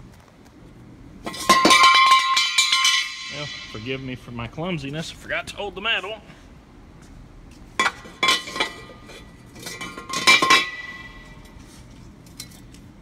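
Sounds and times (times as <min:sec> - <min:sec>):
metal clatter: 0:01.2 - 0:03.8, 0:07.8 - 0:11.6
metal clanking with ringing: 0:07.8 - 0:11.5.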